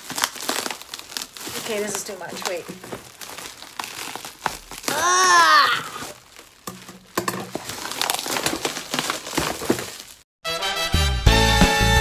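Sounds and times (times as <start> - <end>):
bubble wrap and tape crinkling: 0.0 - 10.3
woman crying out: 4.9 - 6.1.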